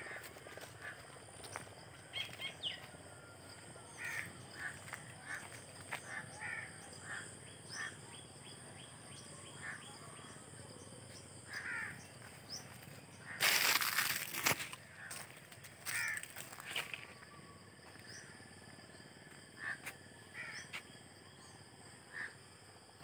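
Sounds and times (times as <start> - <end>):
crows cawing: 0.0 - 1.6, 3.9 - 8.0, 11.5 - 12.2, 13.2 - 16.7, 19.6 - 20.8, 22.1 - 22.4.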